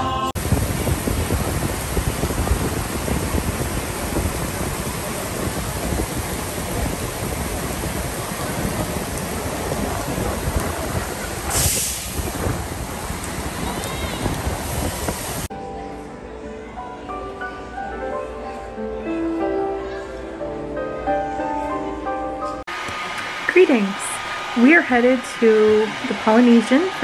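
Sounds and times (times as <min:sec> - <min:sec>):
torrential rain on pavement: 0:00.4 - 0:15.5
wind buffeting microphone: 0:00.4 - 0:15.5
short sharp hiss: 0:11.5 - 0:12.3.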